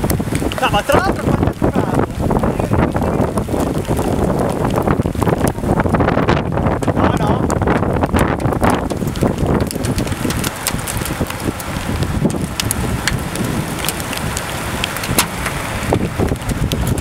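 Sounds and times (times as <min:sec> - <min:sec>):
raindrops ticking: 0:00.0 - 0:17.0
wind gusting over microphone: 0:00.0 - 0:17.0.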